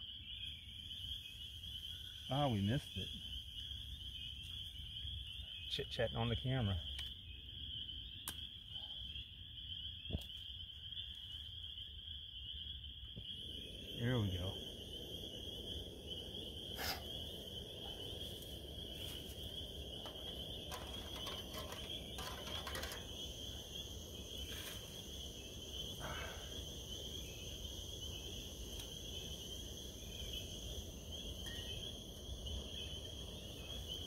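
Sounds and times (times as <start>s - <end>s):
high-pitched chirping chorus: 0.0s - 34.0s
stove burner rushing: 18.9s - 24.9s.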